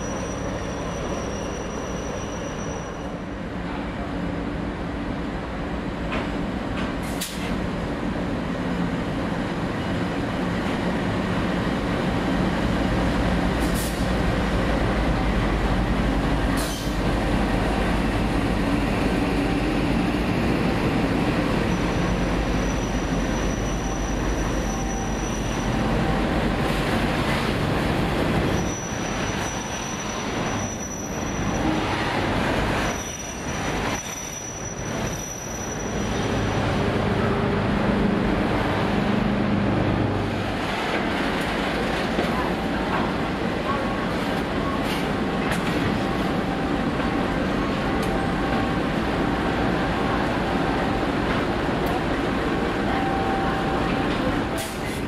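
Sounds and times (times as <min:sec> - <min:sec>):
high wheel squeal: 0:00.0 - 0:03.2, 0:21.6 - 0:25.9, 0:28.4 - 0:32.0, 0:32.7 - 0:36.8
train engine and wheel rumble: 0:00.0 - 0:55.0.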